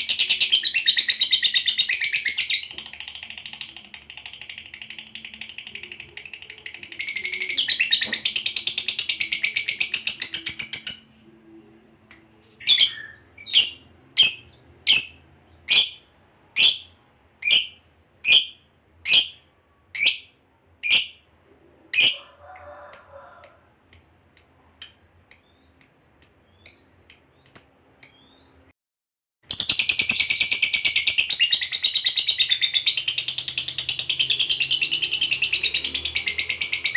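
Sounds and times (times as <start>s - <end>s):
lovebird chattering trill: 23.0s - 28.4s.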